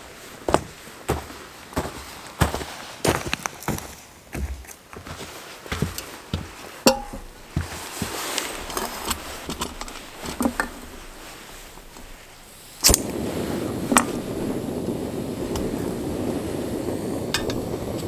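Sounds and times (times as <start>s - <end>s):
gas burner hissing: 5.8s - 18.0s
metal cook pot clinking: 6.9s - 7.5s
stove lighter click: 12.8s - 13.2s, 15.5s - 18.0s.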